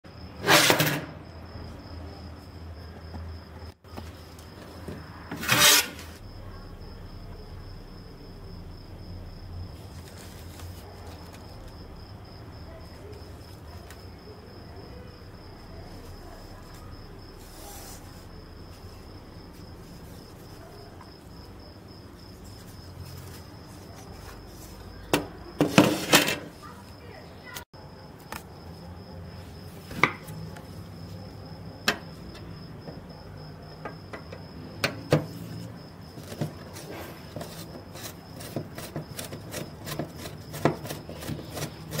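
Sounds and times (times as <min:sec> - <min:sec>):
saw scraping on wooden bench: 0:00.4 - 0:01.2, 0:05.3 - 0:06.2
low background hum: 0:06.1 - 0:25.5.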